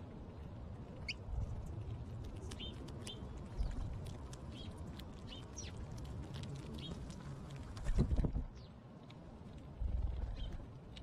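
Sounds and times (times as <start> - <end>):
sparrows chirping: 2.4 - 7.1, 10.2 - 10.6.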